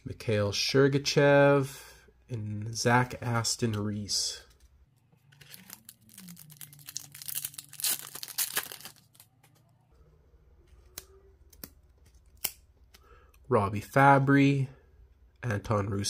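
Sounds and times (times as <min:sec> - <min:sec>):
foil wrapper tearing and crinkling: 0:05.4 - 0:09.3.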